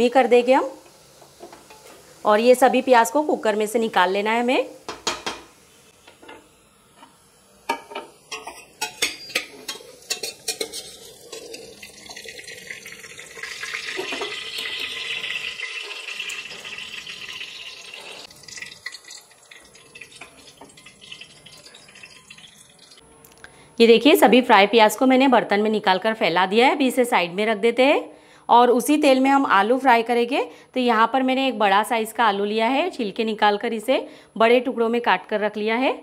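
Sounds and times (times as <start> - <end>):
oil sizzling: 0.0 - 23.1
spoon scraping inside a pot: 7.7 - 12.2.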